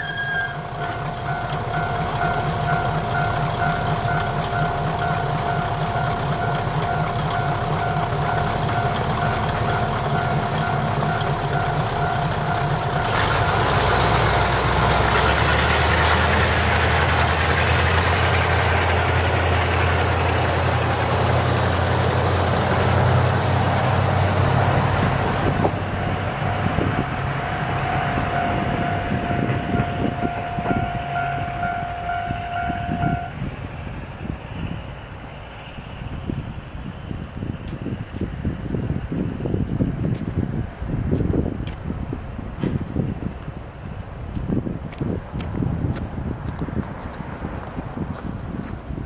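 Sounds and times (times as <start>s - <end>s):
high warning tone: 0.0s - 13.2s, 18.3s - 20.2s, 26.0s - 33.4s
diesel railcar engines: 0.0s - 49.0s.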